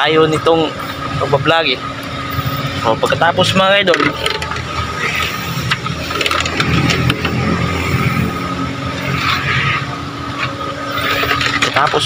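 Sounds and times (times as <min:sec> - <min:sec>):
engine humming with high whine: 0:00.0 - 0:12.0.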